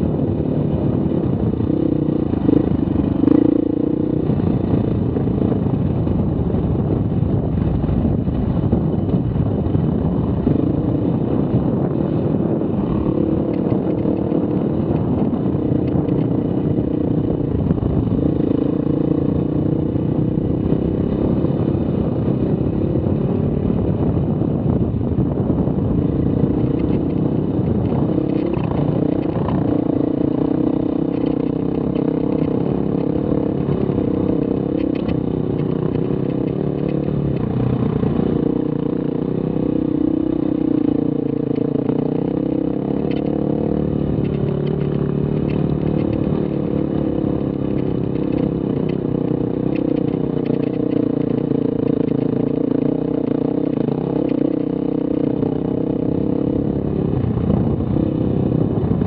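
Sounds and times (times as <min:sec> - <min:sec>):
dirt bike engine running: 0:00.0 - 0:59.0
sharp ticks: 0:27.8 - 0:38.5, 0:40.8 - 0:55.4.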